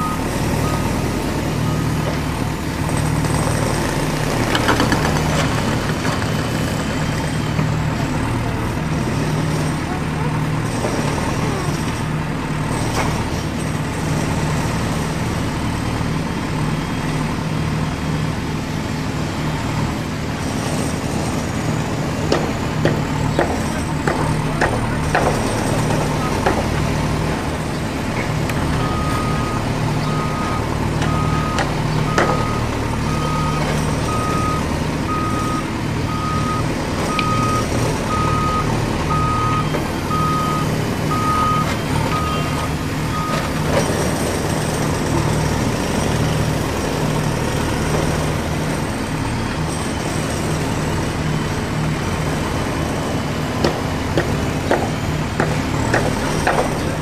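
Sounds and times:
toy reversing beep: 28.8s - 43.5s.

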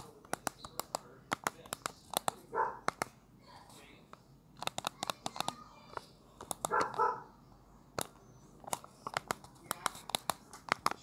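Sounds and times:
plastic keyboard keys clicking: 0.0s - 3.1s, 4.6s - 7.1s, 8.0s - 11.0s.

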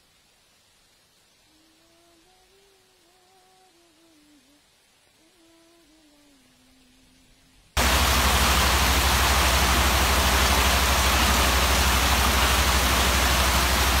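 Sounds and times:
heavy rain falling: 7.8s - 14.0s.

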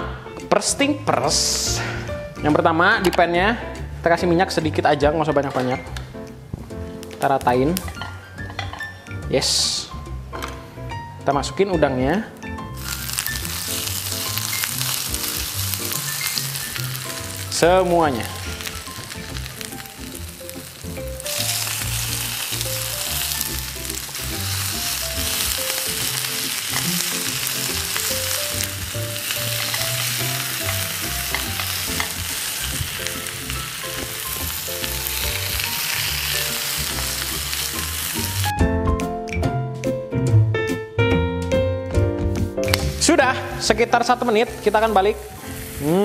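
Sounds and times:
prawns sizzling in a pan: 12.8s - 38.5s, 44.0s - 46.0s.

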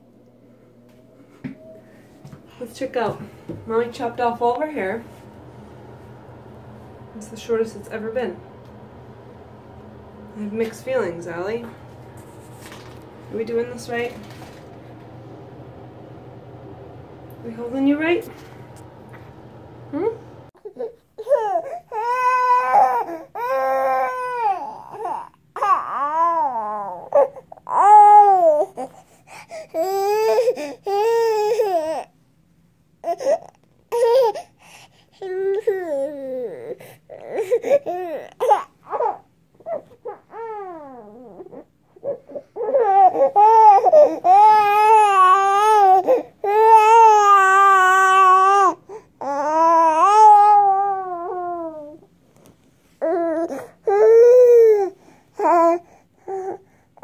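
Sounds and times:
baby wailing cries: 20.6s - 28.9s, 29.7s - 32.1s, 33.0s - 34.5s, 35.2s - 52.0s, 53.0s - 56.6s.

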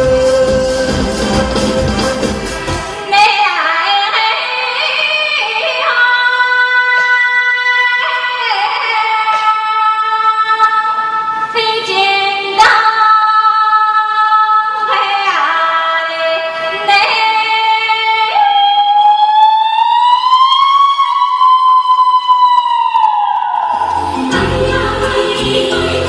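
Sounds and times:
woman singing folk song: 24.3s - 26.0s.

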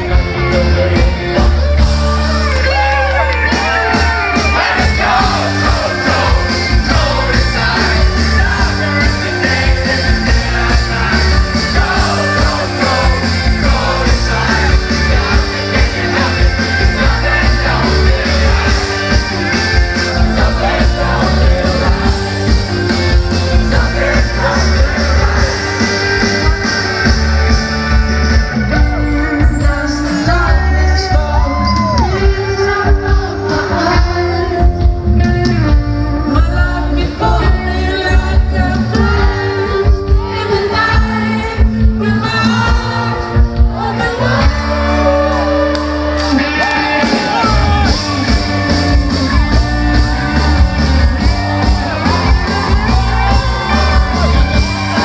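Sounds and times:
man singing lead vocal: 0.0s - 27.1s, 28.6s - 55.0s
live rock band: 0.0s - 55.0s
drums steady beat: 3.4s - 29.9s, 46.2s - 55.0s.

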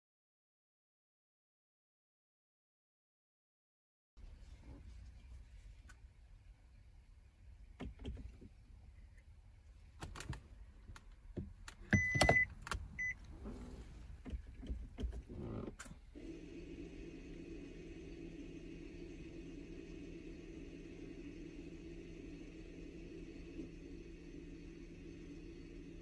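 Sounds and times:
parking brake motor whirr: 11.7s - 26.0s.

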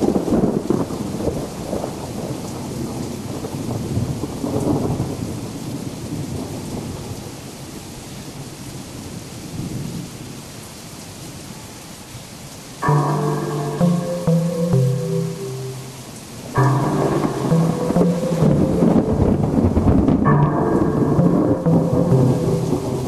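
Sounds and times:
steady rain: 0.0s - 23.0s
thunder rumbling: 15.9s - 23.0s.

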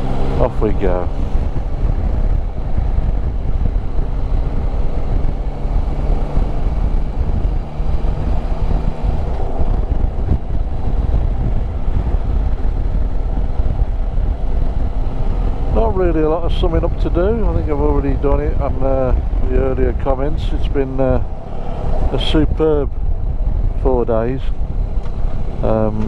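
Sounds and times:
motorcycle engine running: 0.0s - 18.6s
wind rumble on microphone: 0.0s - 26.0s.

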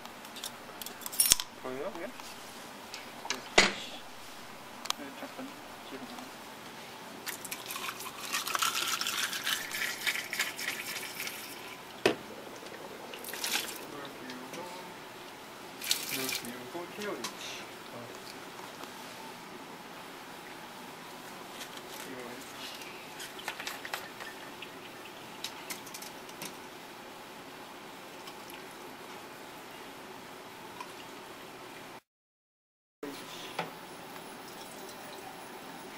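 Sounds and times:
low background hum: 0.0s - 32.0s.

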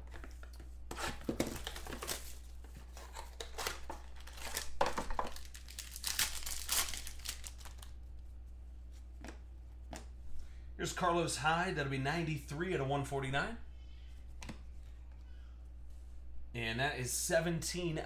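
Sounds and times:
steady low hum: 0.0s - 18.0s
foil wrapper crinkling and tearing: 1.4s - 8.0s.

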